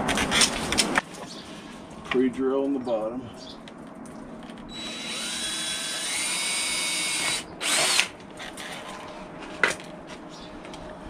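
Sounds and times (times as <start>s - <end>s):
cordless drill whining: 4.7s - 8.8s.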